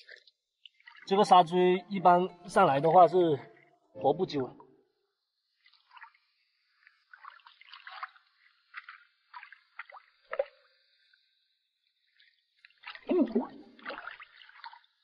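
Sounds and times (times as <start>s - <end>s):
net splashing in rock pool: 5.6s - 10.7s, 12.0s - 15.0s.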